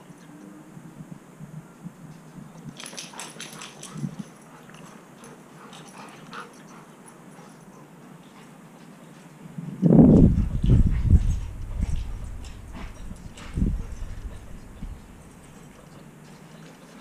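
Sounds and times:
dogs playing: 2.7 - 9.3, 10.1 - 17.0
rustles and clicks: 10.1 - 17.0.

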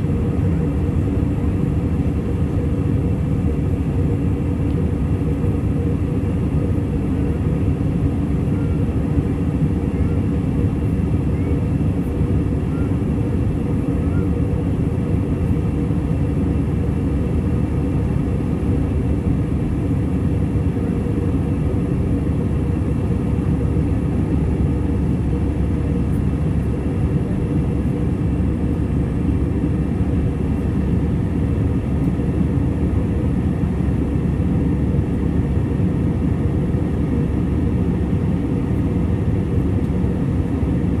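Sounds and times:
airplane cabin engine rumble: 0.0 - 41.0.

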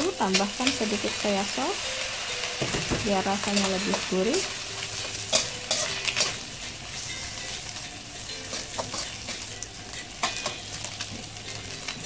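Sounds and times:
food sizzling in a wok: 0.0 - 12.0
spatula scraping a wok: 3.4 - 12.0.

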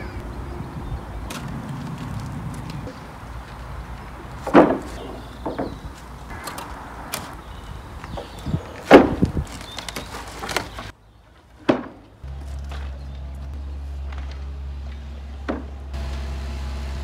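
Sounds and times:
wooden slabs knocking and thudding: 4.3 - 7.4, 8.0 - 10.9, 11.6 - 13.0, 14.0 - 15.9.

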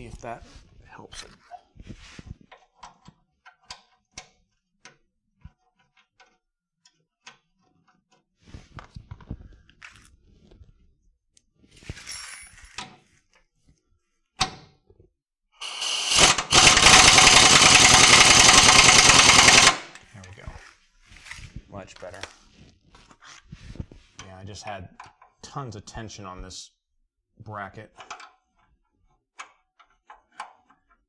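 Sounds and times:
pneumatic wrench hammering: 15.6 - 20.0.

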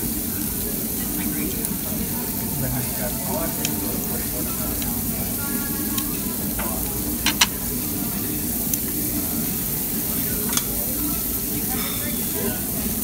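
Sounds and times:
pork sizzling on grill: 0.0 - 13.0
metal tongs clicking on grill: 5.9 - 7.7, 10.4 - 10.8.

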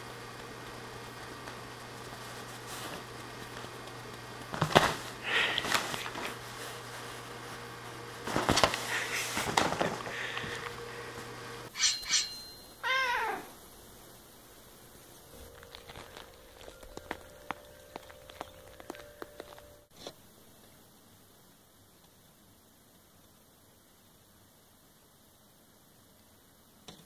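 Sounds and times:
thumps and rustling on couch: 4.5 - 7.2, 8.2 - 10.1
cat meowing: 12.8 - 13.6.

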